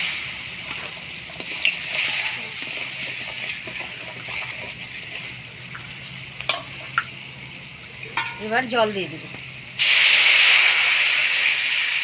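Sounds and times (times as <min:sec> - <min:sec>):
metal spatula stirring in wok: 0:00.0 - 0:06.9
spices sizzling in hot oil: 0:00.0 - 0:12.0
spatula tapping on wok: 0:08.2 - 0:08.5.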